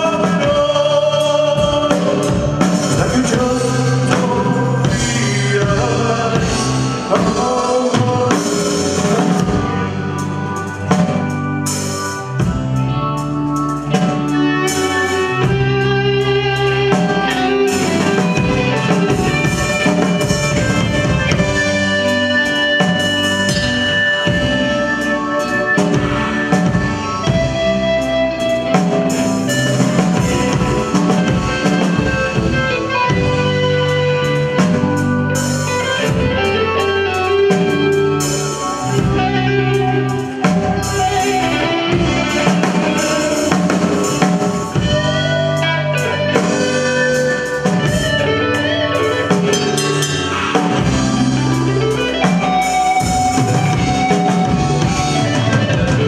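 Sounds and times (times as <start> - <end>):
live band playing rock ballad: 0.0 - 56.0.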